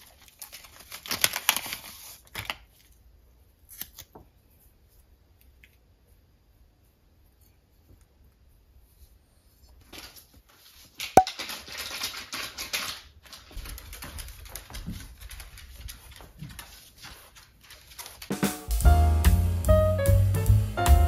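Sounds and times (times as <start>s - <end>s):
dog claws clicking on hard floor: 11.0s - 18.3s
music: 18.3s - 21.0s.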